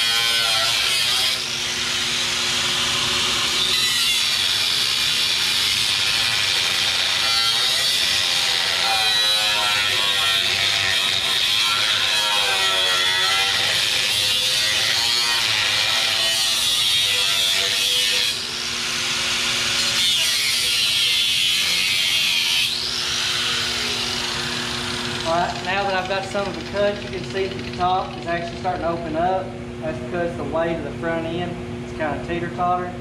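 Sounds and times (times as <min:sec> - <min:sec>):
angle grinder cutting steel: 0:00.0 - 0:28.9
grinder spinning down: 0:17.1 - 0:28.8.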